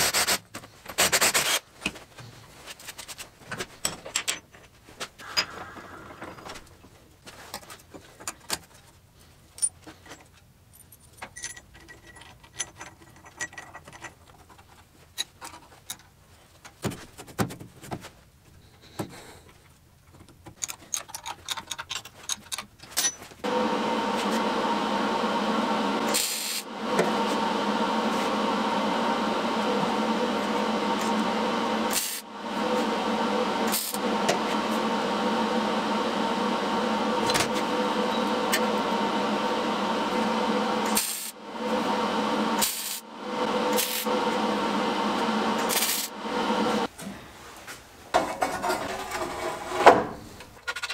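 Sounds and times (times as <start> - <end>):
loud steady drone: 23.5 - 46.9.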